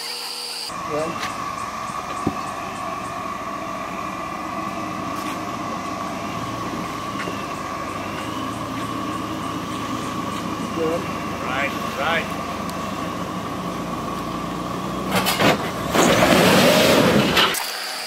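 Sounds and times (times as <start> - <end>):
high-pitched drone: 0.0 - 13.9
car engine running at low revs: 0.7 - 17.4.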